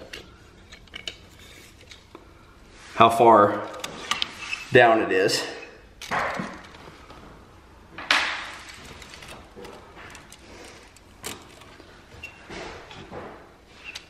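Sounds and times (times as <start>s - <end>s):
tape measure scraping on boards: 4.0s - 4.7s.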